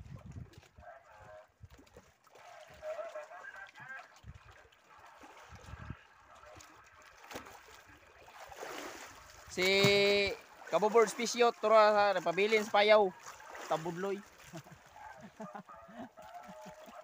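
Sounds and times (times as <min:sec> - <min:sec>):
wind on microphone: 0:00.0 - 0:01.8, 0:04.2 - 0:04.6, 0:05.4 - 0:06.2.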